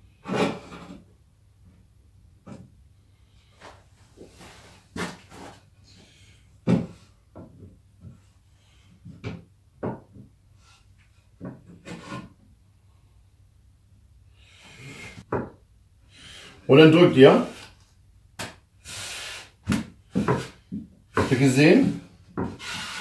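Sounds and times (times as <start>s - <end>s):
wooden boards knocking: 9.2s - 10.3s, 15.3s - 15.6s
boards sliding on wood: 19.8s - 23.0s.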